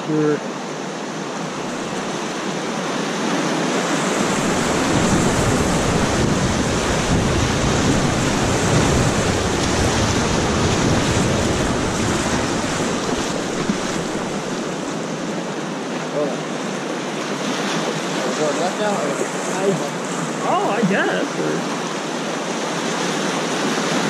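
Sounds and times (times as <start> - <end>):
whitewater rushing: 0.0 - 24.0
wind buffeting microphone: 3.3 - 14.9.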